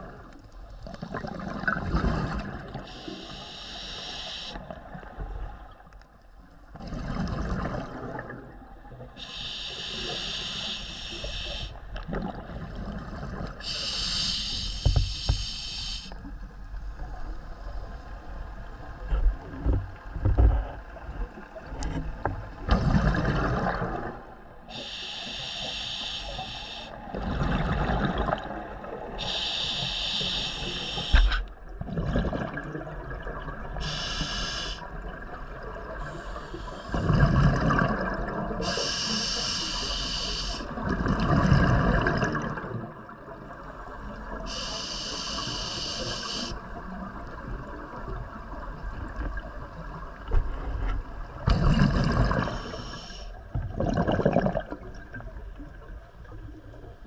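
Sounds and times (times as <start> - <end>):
exhaled bubbles gurgling: 0.0 - 5.8, 6.7 - 16.2, 22.5 - 50.4, 51.2 - 57.0
regulator hiss on inhale: 2.8 - 4.7, 9.2 - 11.8, 13.6 - 16.2, 24.7 - 27.0, 29.2 - 31.5, 33.8 - 34.9, 36.0 - 37.0, 38.6 - 40.8, 43.7 - 46.6, 52.4 - 53.4.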